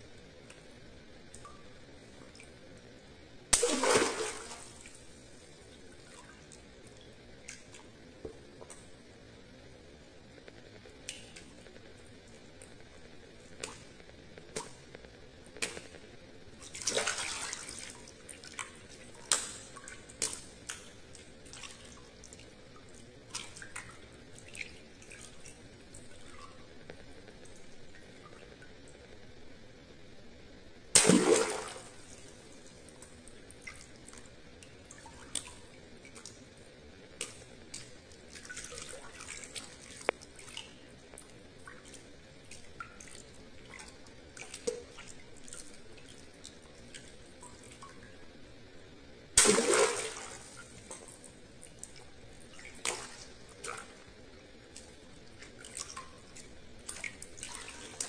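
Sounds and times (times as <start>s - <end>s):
water drips and splashes: 0.4s - 2.9s, 3.5s - 9.0s, 10.5s - 29.0s, 30.9s - 48.2s, 49.3s - 58.0s
water balloon bursting: 3.5s - 4.8s, 30.9s - 31.9s, 49.4s - 50.4s.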